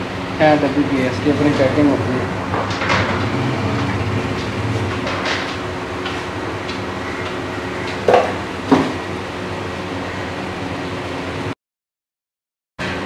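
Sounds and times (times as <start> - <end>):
workshop hum: 0.0 - 11.6, 12.8 - 13.0
sharp knocks: 6.7 - 9.0.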